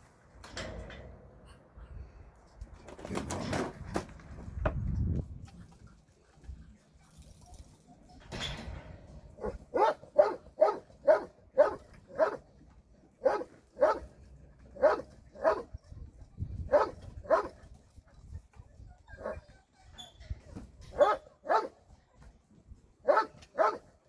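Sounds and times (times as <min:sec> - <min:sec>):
dog barking: 0:09.4 - 0:12.4, 0:13.2 - 0:14.1, 0:14.8 - 0:15.7, 0:16.7 - 0:17.6, 0:21.0 - 0:21.8, 0:23.1 - 0:23.9.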